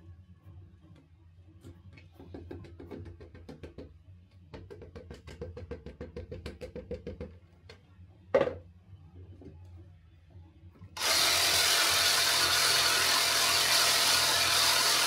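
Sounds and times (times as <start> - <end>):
plastic bucket knocking on wooden table: 8.4 - 8.6.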